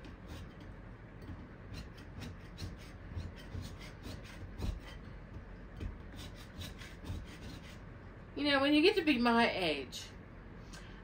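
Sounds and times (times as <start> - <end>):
putty knife scraping wallpaper: 0.0 - 5.2, 5.8 - 7.8.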